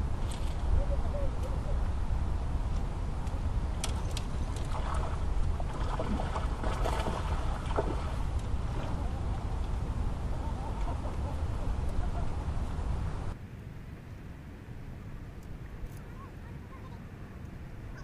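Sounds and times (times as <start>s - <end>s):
wind rumble on microphone: 0.0s - 13.4s.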